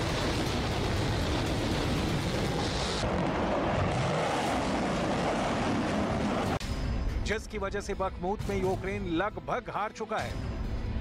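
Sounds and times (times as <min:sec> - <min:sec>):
rockets firing roar: 0:00.0 - 0:06.6.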